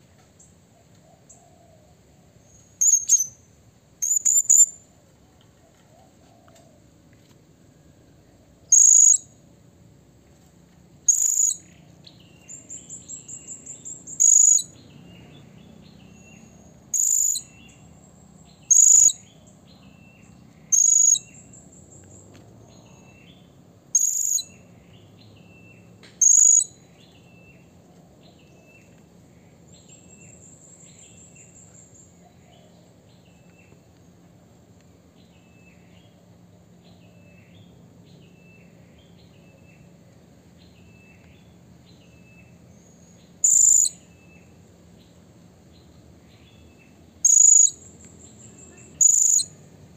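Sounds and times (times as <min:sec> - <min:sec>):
faint lower chirps: 0:02.4 - 0:04.9, 0:07.7 - 0:09.4, 0:11.0 - 0:23.4, 0:24.0 - 0:27.7, 0:40.6 - 0:45.1, 0:46.2 - 0:49.7
fast bird trill: 0:02.8 - 0:03.4, 0:04.0 - 0:04.8, 0:08.7 - 0:09.2, 0:11.1 - 0:11.7, 0:13.1 - 0:14.7, 0:16.9 - 0:17.5, 0:18.7 - 0:19.2, 0:20.7 - 0:21.5, 0:24.0 - 0:24.5, 0:26.2 - 0:26.7, 0:43.4 - 0:44.0, 0:47.2 - 0:47.8, 0:48.4 - 0:49.6
parrot shrill high calls: 0:02.8 - 0:03.4, 0:04.0 - 0:04.8, 0:11.1 - 0:11.6, 0:16.9 - 0:17.5, 0:18.7 - 0:19.2, 0:24.0 - 0:24.5, 0:43.4 - 0:44.0, 0:47.3 - 0:47.8, 0:49.0 - 0:49.5.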